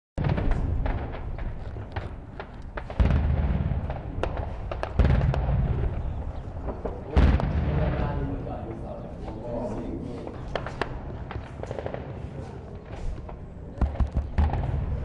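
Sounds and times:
heavy booms with low rumble: 0.2s - 2.2s, 2.8s - 8.6s, 13.8s - 15.0s
gunshots: 0.2s - 8.6s, 10.3s - 15.0s.

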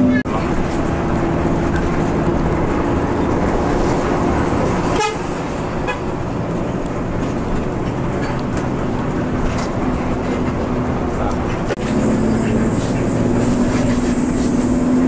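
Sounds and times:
engine and road rumble: 0.0s - 15.0s
bus air horn: 4.9s - 6.1s.

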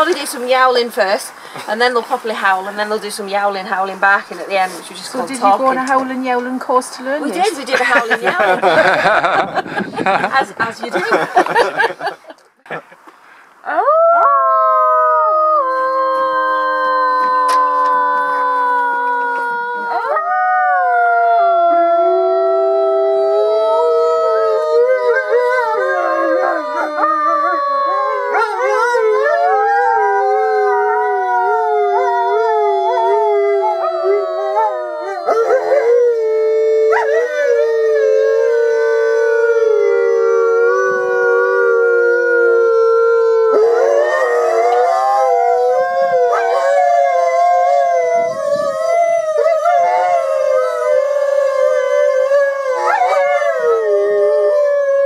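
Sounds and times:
wavering wolf yowls: 13.7s - 55.0s
wolves howling in chorus: 13.9s - 55.0s.

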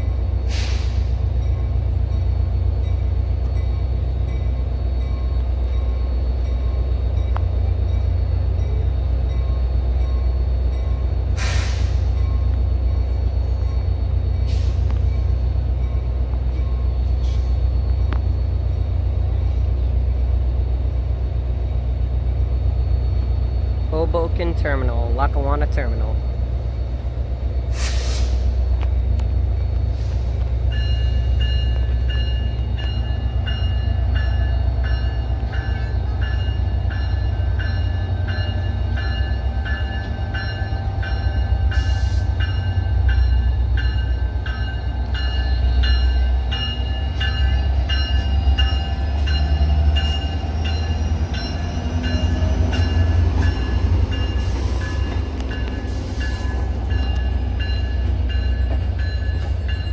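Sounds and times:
train rumbling: 0.0s - 59.9s
locomotive bell ringing: 1.3s - 17.1s, 30.6s - 59.9s.

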